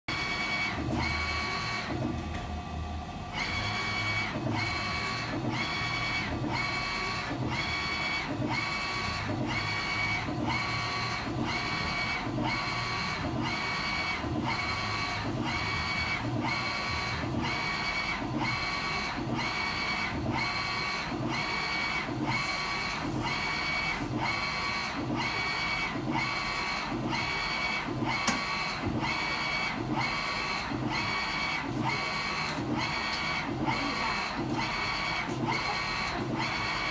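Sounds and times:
printer carriage shuttling with motor whine: 0.1 - 36.9.

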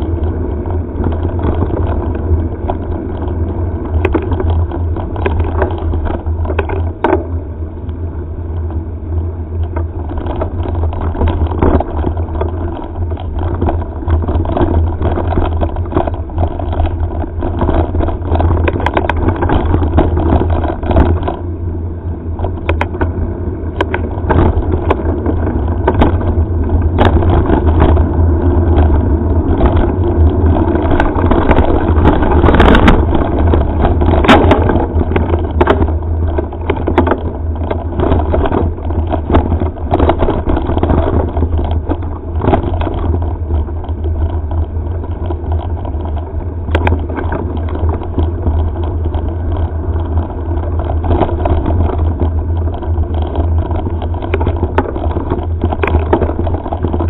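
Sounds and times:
bike knocks and rattles: 0.0 - 57.0
bike tyres on gravel trail: 0.0 - 57.0
wind rumble on microphone: 0.0 - 57.0.

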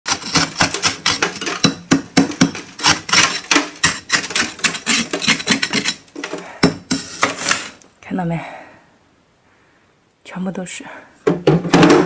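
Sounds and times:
metal spoon scraping frost: 0.1 - 7.8.

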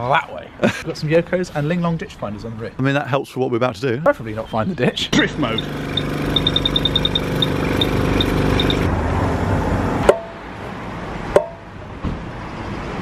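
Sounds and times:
machine hum: 5.2 - 8.9
keypad beeping: 5.4 - 8.9
sharp clicks: 5.6 - 8.9.

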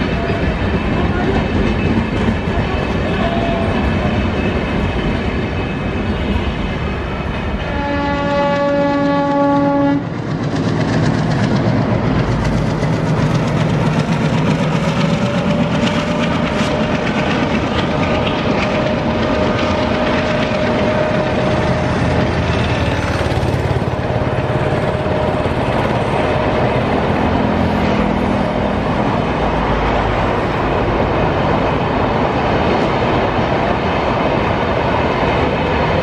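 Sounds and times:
train clickety-clack over rail joints: 0.0 - 36.0
locomotive horn blast: 7.6 - 10.1.

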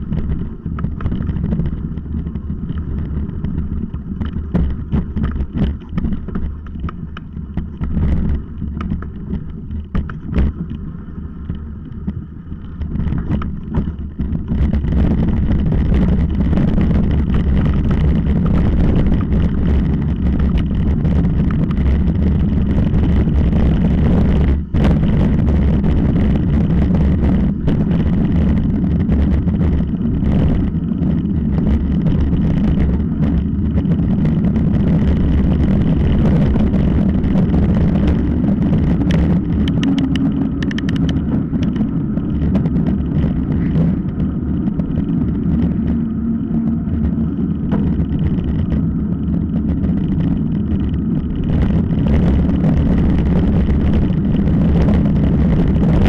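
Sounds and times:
wind rumbling on microphone: 0.0 - 56.0.

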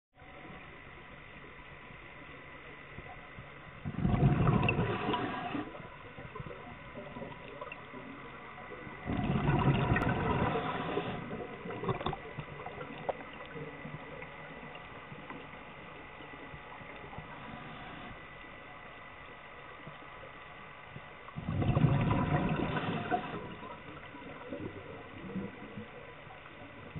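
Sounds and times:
low bubbly hiss: 0.2 - 26.9
gurgling bubble bursts underwater: 3.8 - 15.6, 21.3 - 26.9.

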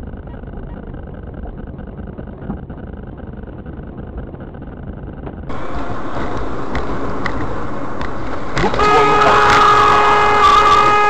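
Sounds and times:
car engine and tyre rumble: 0.0 - 11.0
bright road noise: 5.5 - 11.0.

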